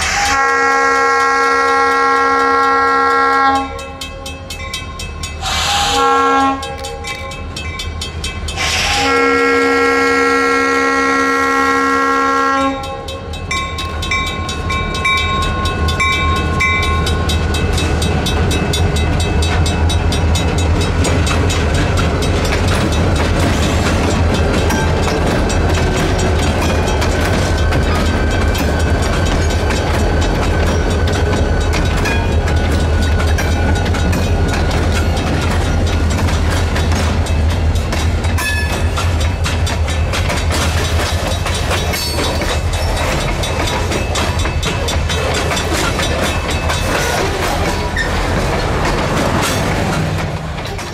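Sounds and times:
train air horn blasts: 0.0s - 4.0s, 5.4s - 7.1s, 8.6s - 13.1s
crossing bell ringing: 0.0s - 48.8s
diesel locomotive rumbling: 0.0s - 50.9s
train wheels clattering over crossing: 0.0s - 50.9s.

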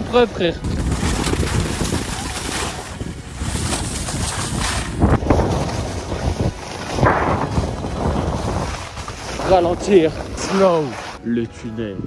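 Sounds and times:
wind rumbling on microphone: 0.0s - 12.0s
skis hissing over snow: 1.6s - 11.2s.

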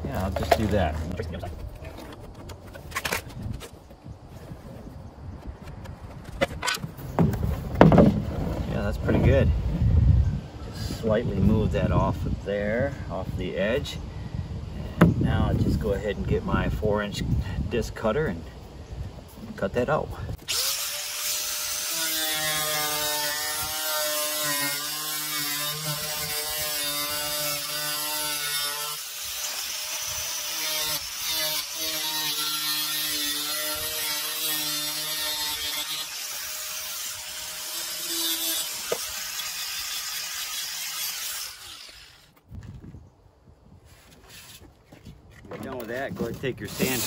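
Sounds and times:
angle grinder cutting plastic panel: 20.4s - 42.4s.

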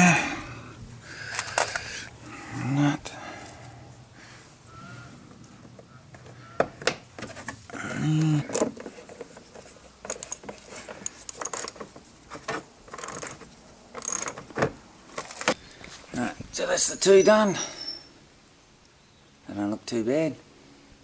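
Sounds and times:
short vocal sound: 7.8s - 8.5s
metallic clicks of nut and spanner: 10.0s - 11.9s, 12.9s - 14.5s.

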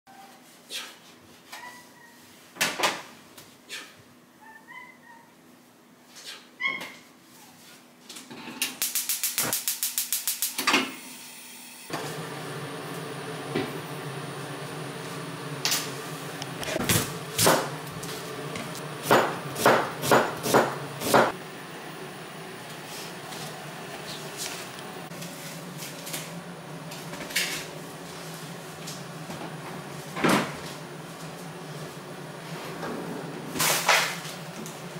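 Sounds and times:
gas burner rushing hum: 8.7s - 34.9s
knife chopping on plastic board: 19.0s - 21.3s.

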